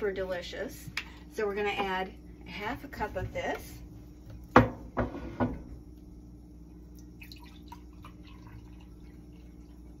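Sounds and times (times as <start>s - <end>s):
juice trickling into a glass: 6.8s - 10.0s.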